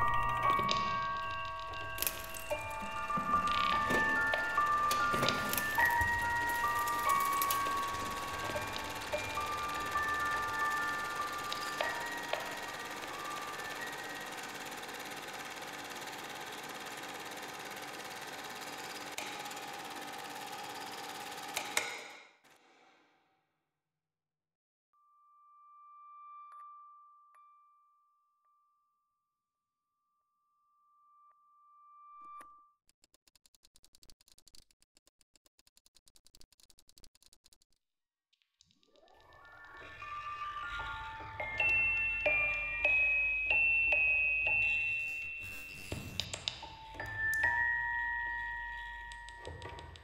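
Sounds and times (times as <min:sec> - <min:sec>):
music box mechanism clicking: 0:00.0 - 0:19.6
small machine rattling whir: 0:00.0 - 0:22.6, 0:39.6 - 0:44.9.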